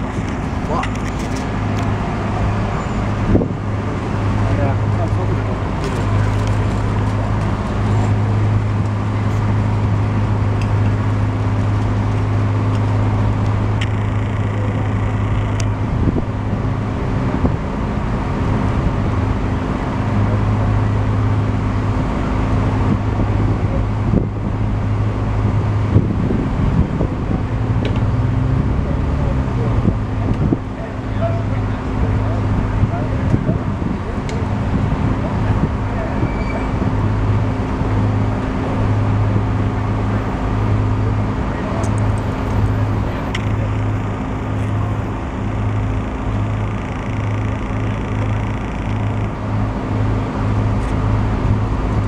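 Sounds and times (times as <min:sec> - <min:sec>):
heavy engine idling: 0:00.0 - 0:26.8, 0:30.1 - 0:52.0
road traffic noise: 0:00.0 - 0:52.0.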